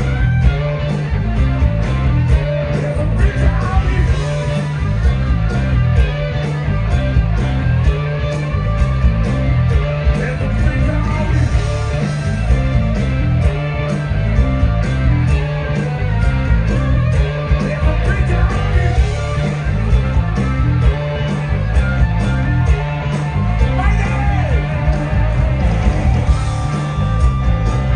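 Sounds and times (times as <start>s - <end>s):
bass guitar: 0.0s - 27.9s
electric guitars: 0.0s - 27.9s
steady drum beat: 0.0s - 27.9s
man singing: 2.7s - 4.6s, 10.1s - 11.7s, 17.5s - 19.0s.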